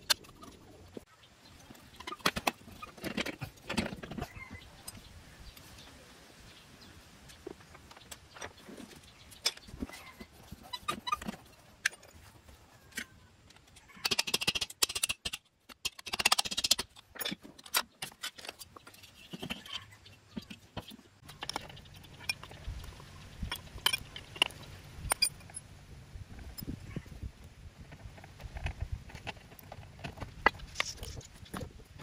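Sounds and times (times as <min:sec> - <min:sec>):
metal parts clinking: 0:12.9 - 0:19.8, 0:23.4 - 0:25.7.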